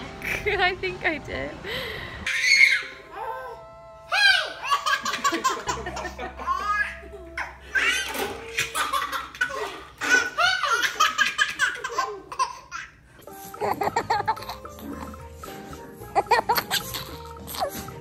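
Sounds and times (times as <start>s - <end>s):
baby laughing: 4.1s - 13.0s, 13.6s - 15.2s, 16.2s - 17.9s.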